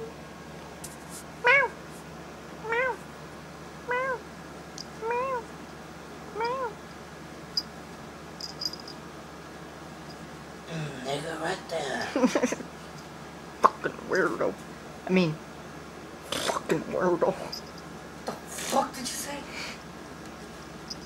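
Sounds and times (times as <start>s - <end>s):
cat meowing: 1.4s - 1.8s, 2.6s - 3.0s, 3.9s - 4.2s, 5.0s - 5.5s, 6.3s - 6.8s.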